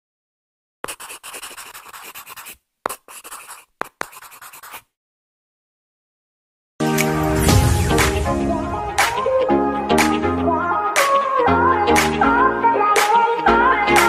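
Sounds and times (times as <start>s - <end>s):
pen scribbling on paper: 0.8s - 4.9s.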